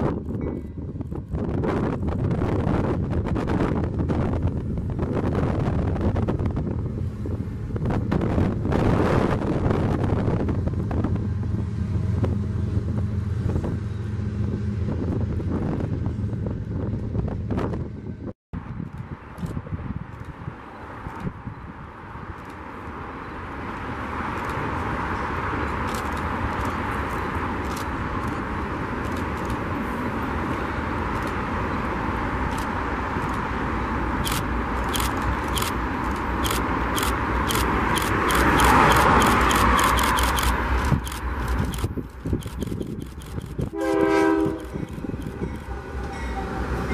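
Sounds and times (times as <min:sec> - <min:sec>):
distant train rumble and hiss: 0:00.0 - 0:46.9
locomotive engines humming: 0:00.0 - 0:46.9
wind buffeting microphone: 0:00.0 - 0:46.9
train wheels clicking and clanking: 0:34.2 - 0:43.8, 0:44.4 - 0:46.9.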